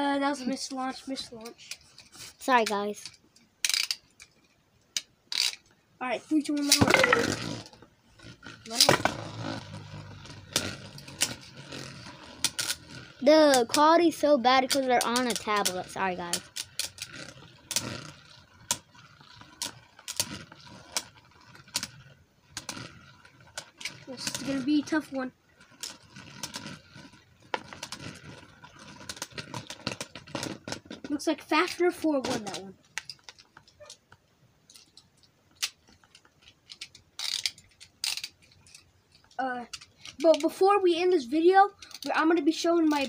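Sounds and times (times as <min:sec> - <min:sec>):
spinning tops whirring: 0:06.5 - 0:18.9.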